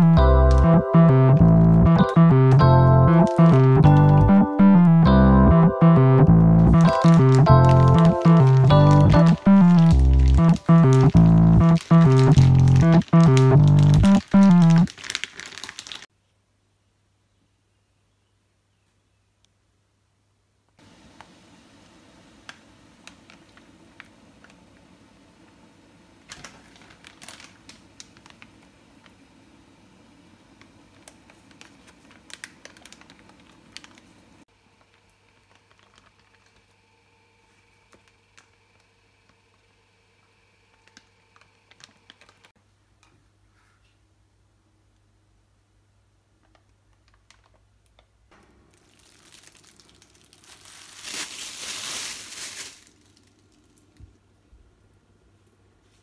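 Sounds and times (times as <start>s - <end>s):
plastic bags crinkling: 6.7s - 16.1s, 26.3s - 28.7s, 30.9s - 34.2s, 34.8s - 36.8s, 40.8s - 42.5s, 48.6s - 54.0s.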